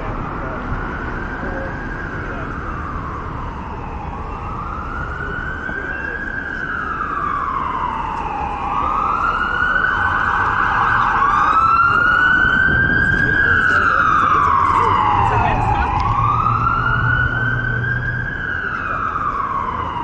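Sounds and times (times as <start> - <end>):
emergency siren wailing: 0.0 - 20.0
low traffic rumble: 0.0 - 20.0.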